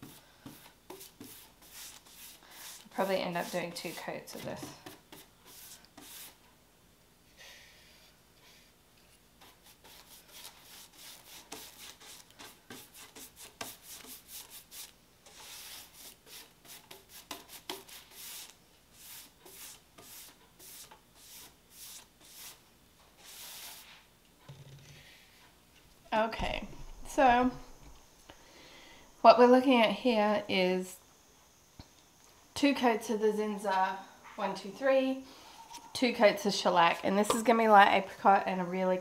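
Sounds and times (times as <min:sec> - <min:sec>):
paintbrush swishing strokes: 0:00.0 - 0:06.4, 0:09.4 - 0:22.6, 0:23.2 - 0:24.1.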